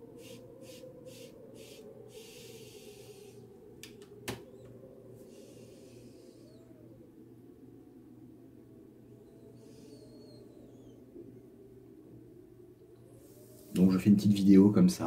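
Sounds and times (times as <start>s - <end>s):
pipe smoker's breath hissing: 0.0s - 3.5s, 5.2s - 6.8s.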